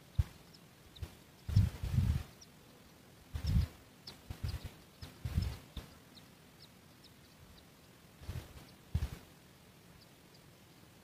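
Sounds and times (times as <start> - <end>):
high-pitched bird chirps: 0.2 - 2.5, 3.4 - 7.7
muffled low thumps: 1.5 - 2.2, 3.4 - 3.7, 4.3 - 5.9, 8.2 - 9.2.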